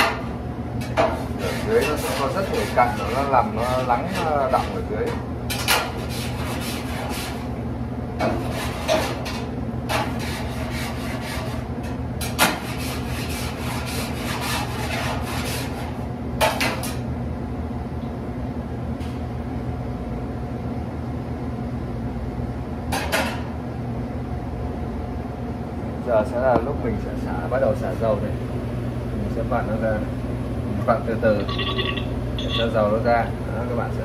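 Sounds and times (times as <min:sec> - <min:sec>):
tool scraping steel vat: 0:01.0 - 0:04.8, 0:09.9 - 0:11.6, 0:12.2 - 0:15.9
steady machine hum: 0:23.5 - 0:34.0.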